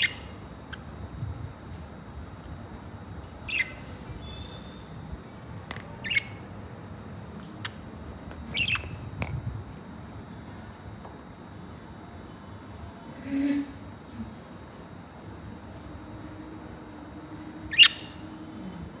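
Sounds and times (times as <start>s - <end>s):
budgerigars chirping: 0.0s - 0.3s, 3.4s - 4.8s, 6.0s - 6.4s, 8.5s - 9.0s, 17.7s - 18.2s.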